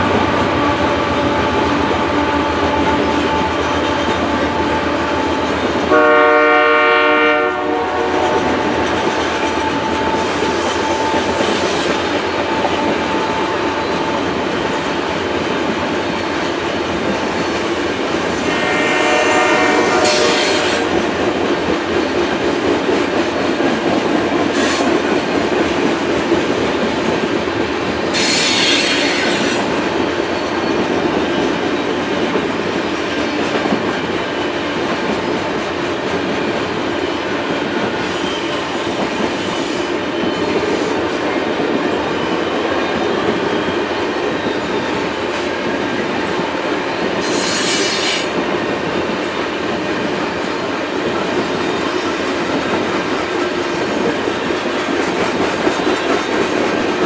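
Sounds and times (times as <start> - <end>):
freight train wheels rumbling: 0.0 - 57.0
train horn chord: 0.1 - 15.0, 18.4 - 21.2.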